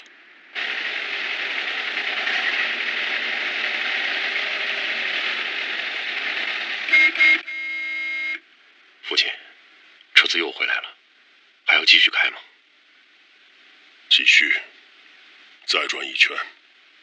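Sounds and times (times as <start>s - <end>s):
vintage car horn toots: 6.9s - 8.4s
steady background hiss: 6.9s - 17.0s.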